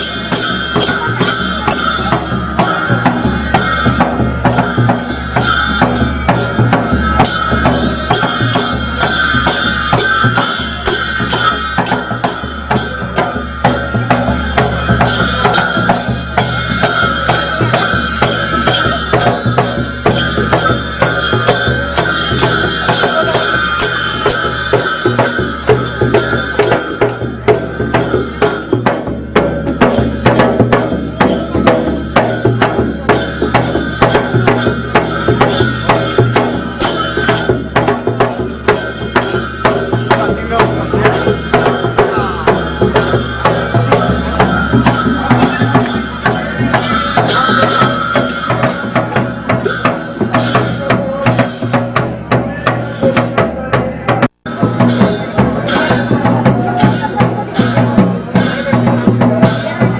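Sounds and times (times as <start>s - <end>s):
barrel drums beaten: 0.0s - 59.9s
hand cymbals clashing: 0.0s - 59.9s.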